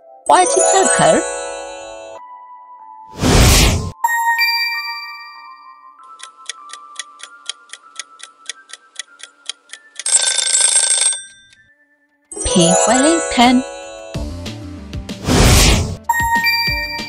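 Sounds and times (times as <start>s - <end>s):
bright time-up sound: 0.3s - 2.2s, 12.4s - 14.2s, 16.1s - 17.0s
chime: 0.3s - 2.2s, 4.0s - 6.3s, 11.2s - 14.2s, 16.1s - 17.0s
whoosh: 3.2s - 4.0s, 15.2s - 16.0s
clock countdown ticking: 6.1s - 10.3s.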